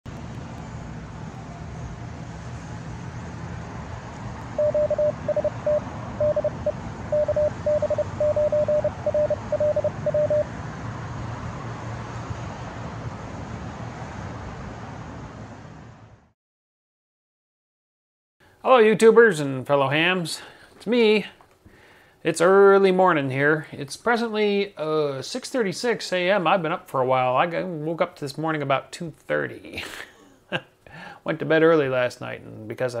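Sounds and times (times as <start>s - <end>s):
morse code beeps: 4.6s - 10.5s.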